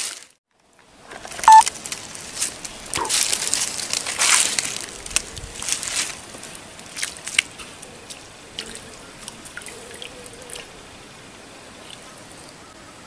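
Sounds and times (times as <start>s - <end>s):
splashes in shallow water: 5.6s - 10.7s.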